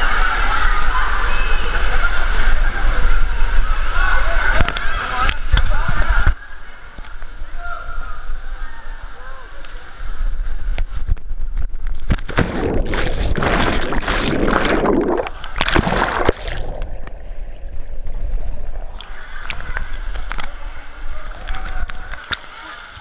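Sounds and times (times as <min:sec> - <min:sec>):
water splashing and churning: 0:11.9 - 0:23.0
water lapping: 0:12.4 - 0:23.0
muffled underwater sound: 0:12.5 - 0:23.0.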